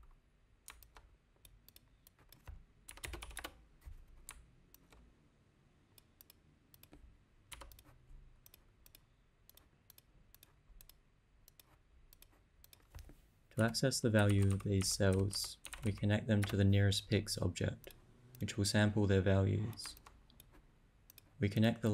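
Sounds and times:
keyboard typing: 0.7s - 5.0s, 6.0s - 16.7s, 19.7s - 21.4s.

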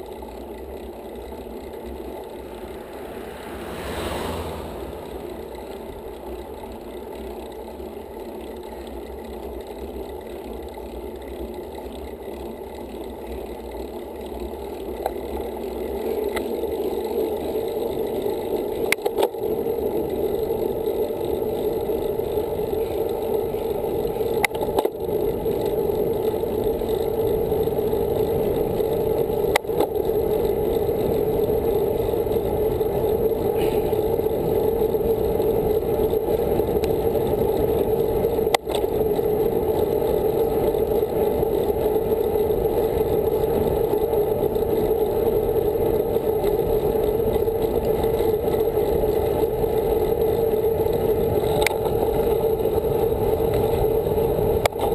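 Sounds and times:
bicycle tyre noise on asphalt: 0.0s - 54.9s
wind rushing: 2.3s - 5.7s.

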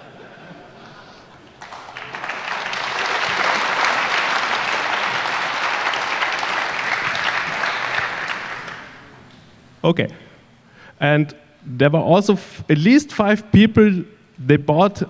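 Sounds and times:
audience applauding: 1.3s - 9.1s.

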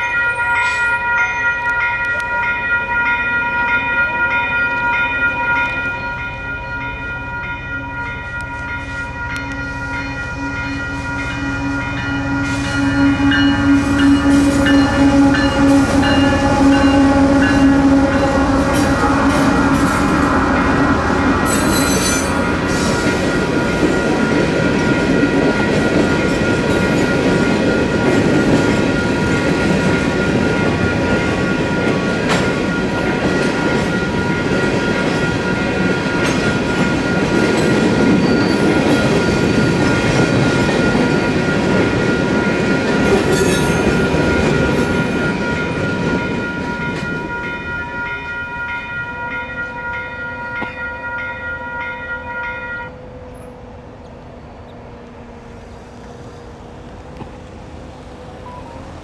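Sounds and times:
crossing warning bell ringing: 0.0s - 57.0s, 57.6s - 59.0s
train horn: 8.9s - 23.5s, 49.0s - 53.6s
train wheels clattering over rails: 13.7s - 47.3s.

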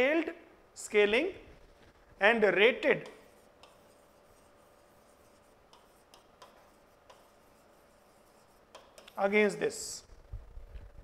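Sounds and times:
faint steady hum: 0.0s - 11.0s
stylus tapping and scratching screen: 2.8s - 9.5s.

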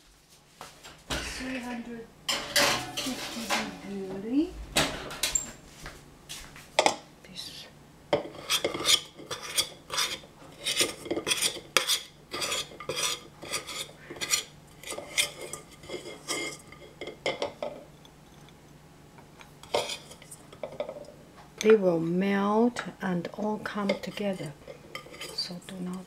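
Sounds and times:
metal spoon scraping a saucepan: 2.3s - 3.9s, 8.2s - 17.1s, 19.6s - 20.6s, 23.7s - 26.0s.

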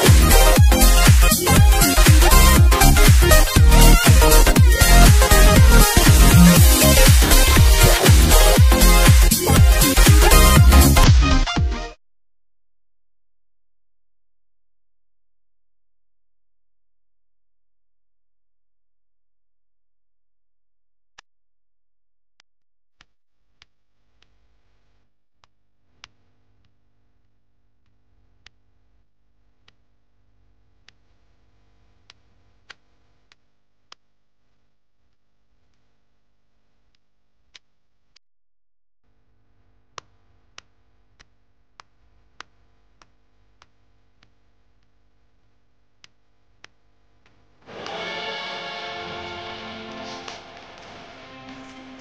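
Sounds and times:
music: 0.0s - 12.0s, 47.6s - 52.0s.

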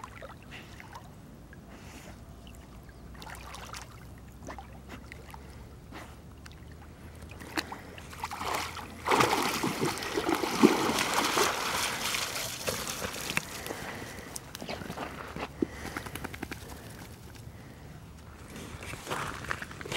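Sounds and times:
water trickling and lapping: 0.0s - 16.0s
dog splashing through water: 7.4s - 13.8s.

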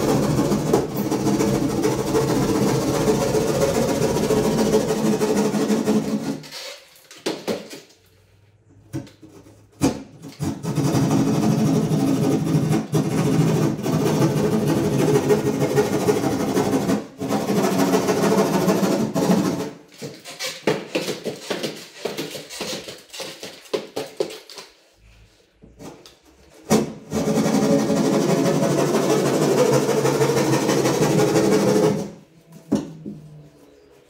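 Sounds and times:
knocks and clatter: 0.0s - 8.0s.

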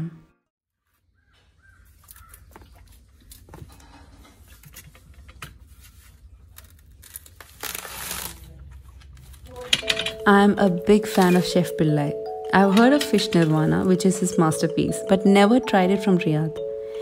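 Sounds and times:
coconut husk tearing: 5.7s - 9.6s.

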